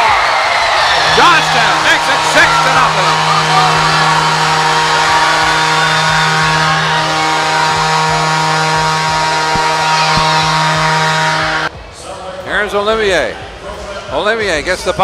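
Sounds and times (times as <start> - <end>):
crowd cheering: 0.0 - 11.7
goal horn blaring: 0.0 - 11.7.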